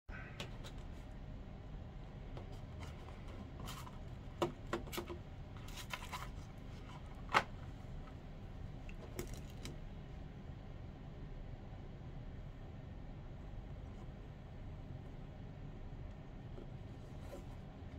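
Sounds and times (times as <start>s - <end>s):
low steady hum: 0.1s - 17.9s.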